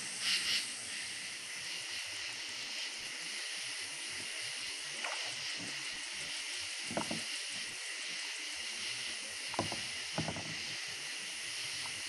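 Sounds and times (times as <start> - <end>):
night insects chirring: 0.0 - 12.0
faint knocks on kayak: 6.9 - 7.2, 9.6 - 10.5.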